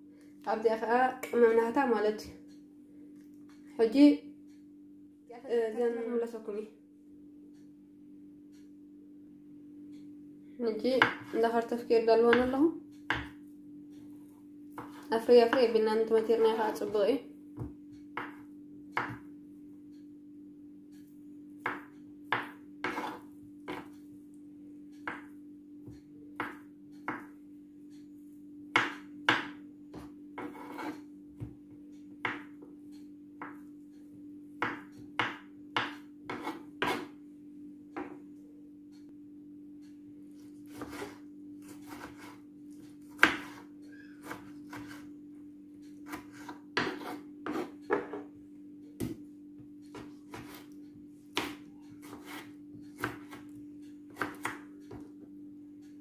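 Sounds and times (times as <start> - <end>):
knife tapping cutting board: 11.0 - 11.4, 12.3 - 13.4, 17.6 - 19.3, 21.6 - 23.9, 25.0 - 25.3, 25.9 - 27.3, 28.7 - 31.6, 32.2 - 32.7, 34.6 - 37.1, 43.1 - 43.6, 44.2 - 45.0, 46.1 - 48.3, 49.0 - 55.2.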